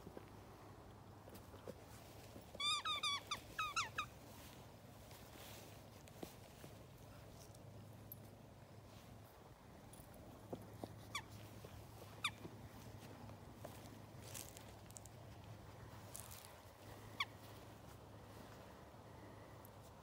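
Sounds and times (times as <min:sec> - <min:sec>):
rubber ball squeaking: 0:02.5 - 0:04.1.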